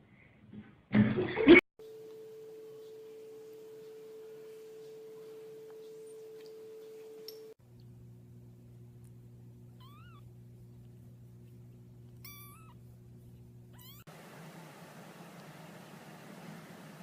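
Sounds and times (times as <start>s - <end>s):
steady low hum: 1.8s - 17.0s
kitten meowing: 9.8s - 10.3s, 12.2s - 12.8s, 13.7s - 14.1s.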